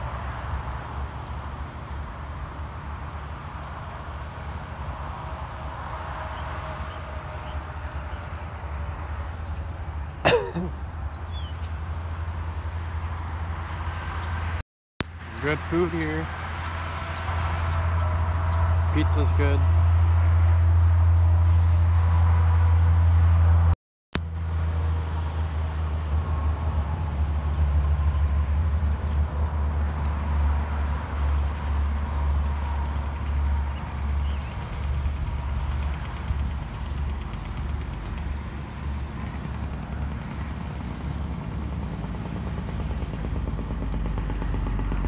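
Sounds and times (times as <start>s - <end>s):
low outdoor rumble: 0.0s - 45.0s.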